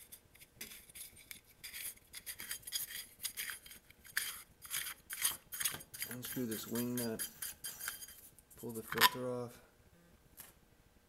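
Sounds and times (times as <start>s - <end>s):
metallic clinks and scrapes: 0.6s - 9.2s.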